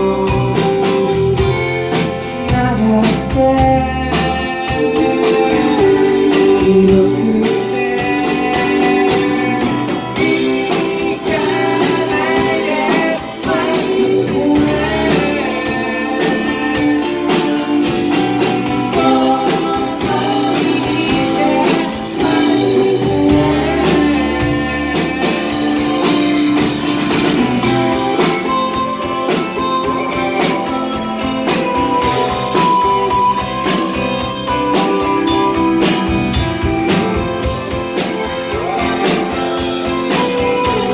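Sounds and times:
man singing: 0.0s - 28.9s
acoustic guitar strumming: 0.0s - 40.9s
bass: 0.0s - 40.9s
drums: 0.0s - 40.9s.

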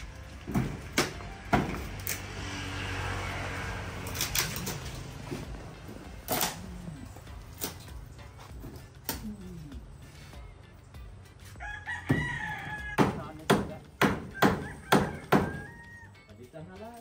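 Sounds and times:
wooden knocks and clatter: 0.4s - 2.0s.

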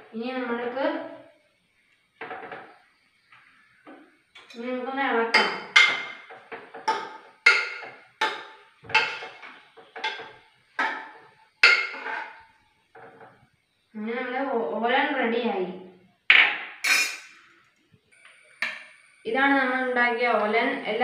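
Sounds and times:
metal spoon clinking on saucepan: 5.3s - 6.3s, 6.9s - 12.4s.

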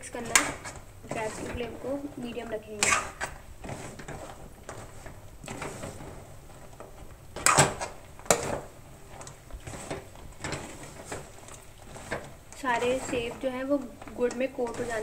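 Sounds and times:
spatula scraping metal pan: 0.0s - 6.1s, 9.6s - 15.0s.

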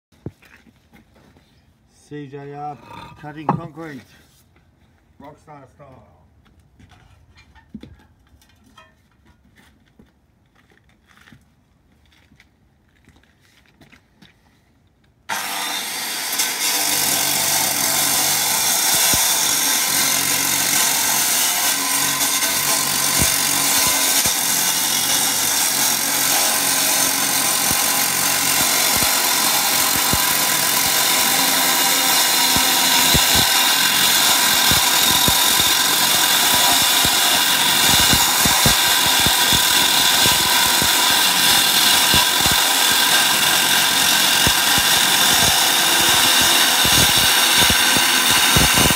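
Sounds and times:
cut-off saw grinding concrete: 2.3s - 4.1s, 15.3s - 48.9s.

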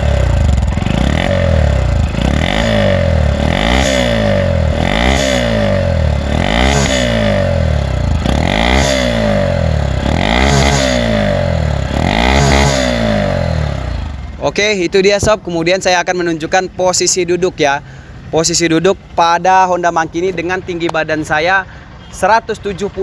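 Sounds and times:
motorcycle engine revving: 0.0s - 15.3s.

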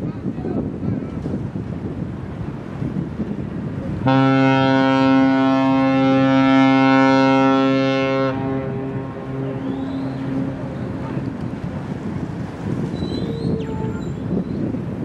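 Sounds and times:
wind rumbling on microphone: 0.0s - 15.0s
ship's horn blast: 3.9s - 12.0s.

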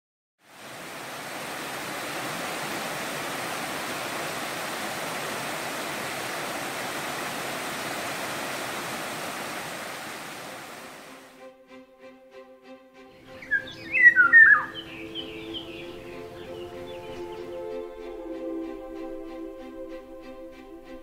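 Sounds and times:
stream running over rocks: 0.5s - 11.3s.

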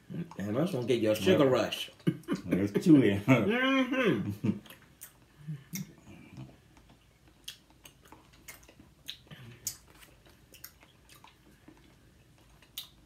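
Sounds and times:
mouth clicks and smacks chewing: 4.6s - 13.0s.

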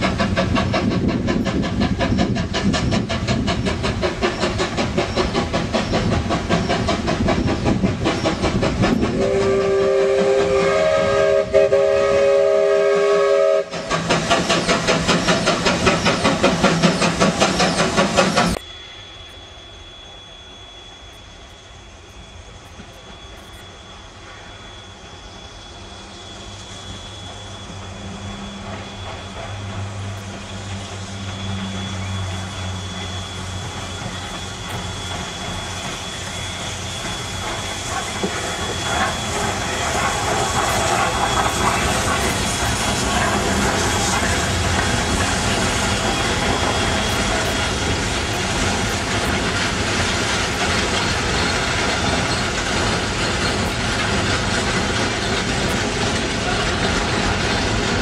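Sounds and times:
steam locomotive exhaust chuffs: 0.0s - 58.0s
steam whistle chord: 9.1s - 13.9s
faint steady high tone: 18.6s - 29.2s.

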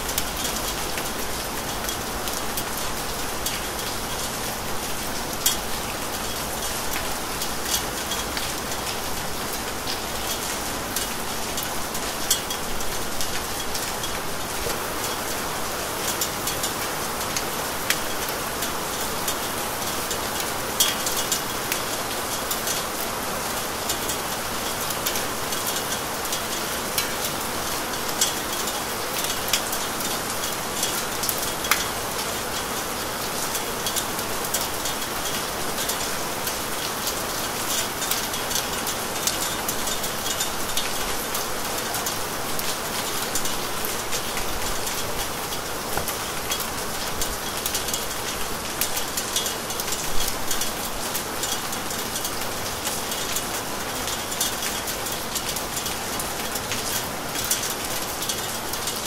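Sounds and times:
steady rain falling: 0.0s - 59.0s
rain drop spatters: 23.8s - 59.0s.

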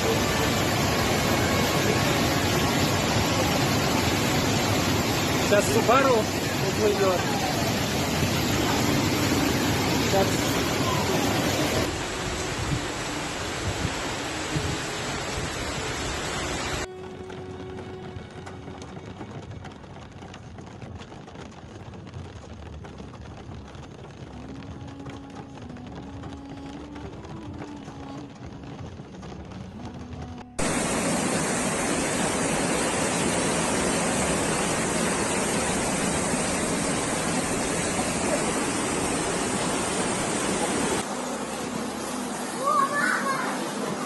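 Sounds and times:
floodwater torrent rushing: 0.0s - 20.2s, 30.6s - 44.0s.

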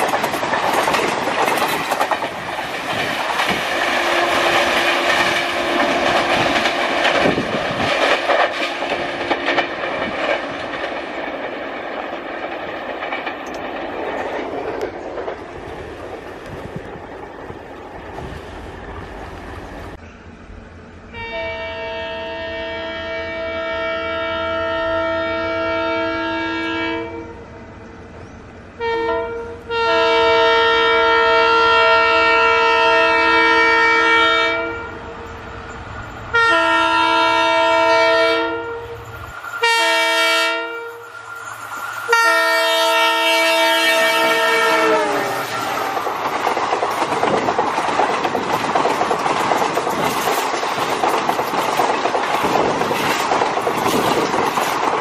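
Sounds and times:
train wheels clattering on rails: 0.0s - 20.1s, 38.8s - 55.0s
train horn blasts: 3.8s - 7.4s, 21.1s - 27.5s, 28.8s - 35.2s, 36.3s - 41.2s, 42.1s - 45.9s.

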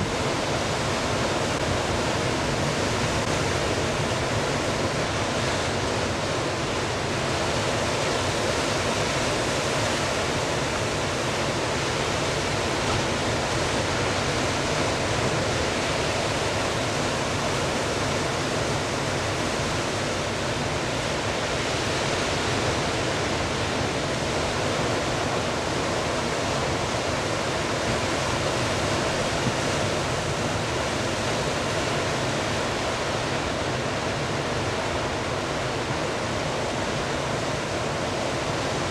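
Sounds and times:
ocean surf breaking: 0.0s - 38.9s.

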